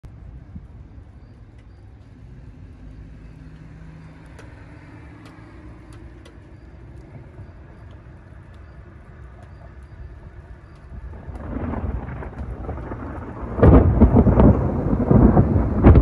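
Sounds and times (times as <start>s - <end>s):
low outdoor rumble: 0.0s - 16.0s
faint ticks: 0.6s - 13.0s
car passing: 0.6s - 16.0s.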